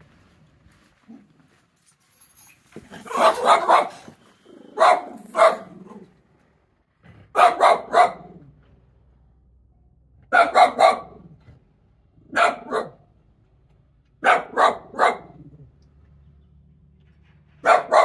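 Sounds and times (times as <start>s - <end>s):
dog barking: 3.0s - 6.0s, 7.3s - 8.5s, 10.3s - 11.4s, 12.2s - 13.1s, 14.2s - 15.5s, 17.6s - 18.0s.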